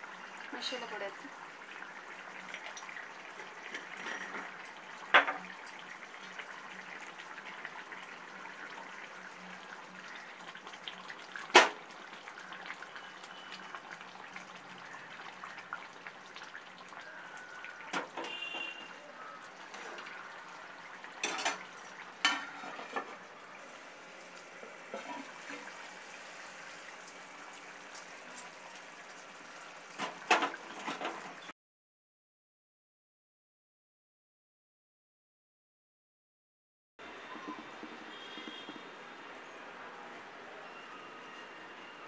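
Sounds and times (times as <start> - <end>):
curry simmering and bubbling: 0.0 - 31.5, 37.0 - 40.0.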